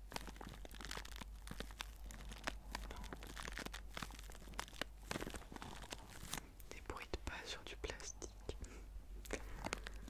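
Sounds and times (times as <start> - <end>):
plastic bag crinkling: 0.0 - 7.1, 9.2 - 10.0.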